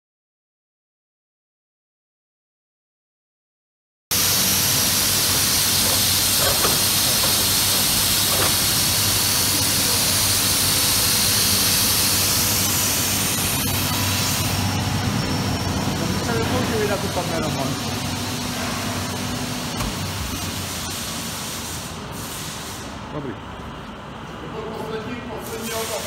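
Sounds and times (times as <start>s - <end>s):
air compressor running: 4.1s - 26.0s.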